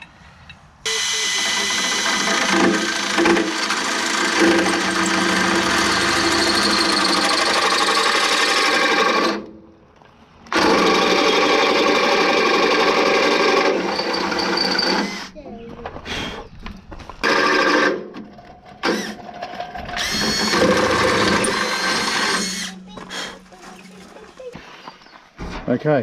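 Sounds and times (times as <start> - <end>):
cordless drill boring metal: 0.9 - 9.4, 10.5 - 15.3, 17.2 - 18.0, 18.8 - 23.3.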